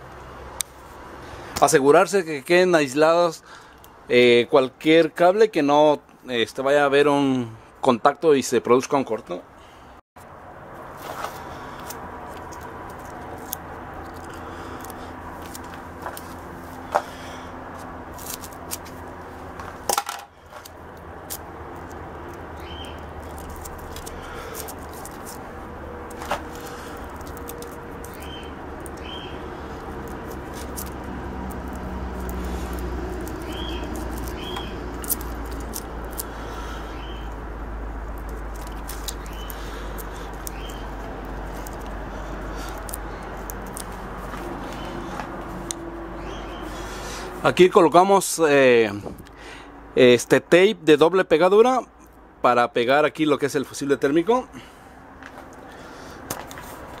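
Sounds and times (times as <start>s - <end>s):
small parts clicking: 30.1s - 36.3s.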